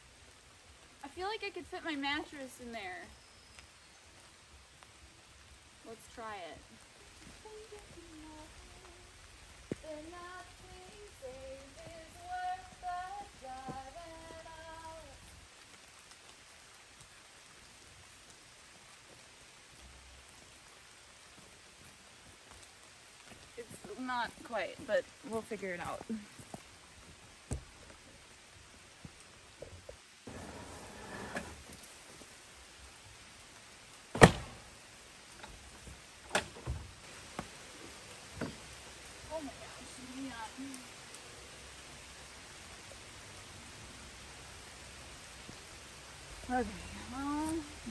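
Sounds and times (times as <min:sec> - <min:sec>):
light rain hiss: 0:00.0 - 0:47.9
woman singing wordless tune: 0:05.9 - 0:15.3, 0:39.3 - 0:41.0, 0:46.5 - 0:47.9
rustling: 0:06.6 - 0:16.4, 0:29.1 - 0:33.1.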